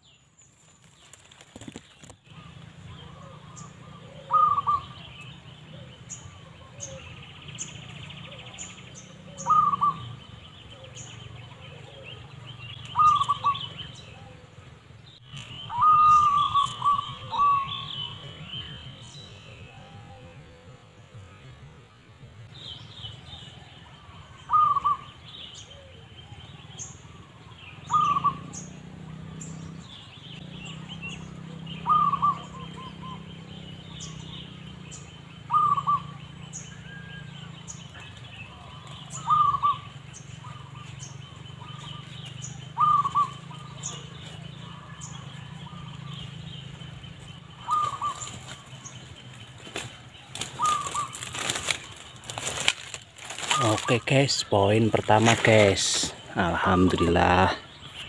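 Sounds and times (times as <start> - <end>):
faint bird chirps: 0.0 - 58.0
dove cooing: 1.2 - 58.0.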